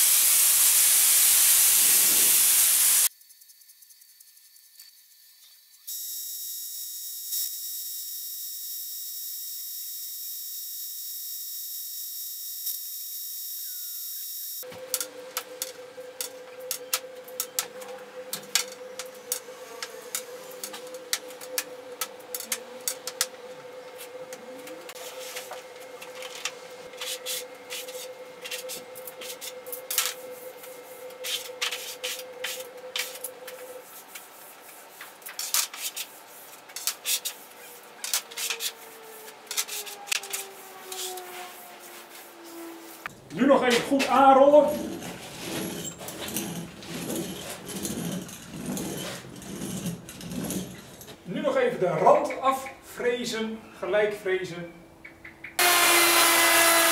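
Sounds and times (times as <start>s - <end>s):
spray gun hissing: 0.0s - 3.1s.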